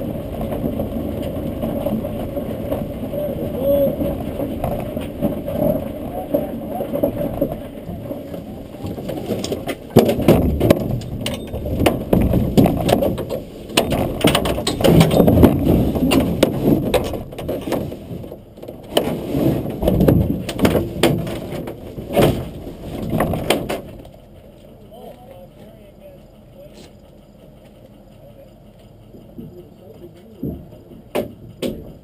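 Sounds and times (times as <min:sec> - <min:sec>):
clicks and knocks: 0:04.1 - 0:24.1.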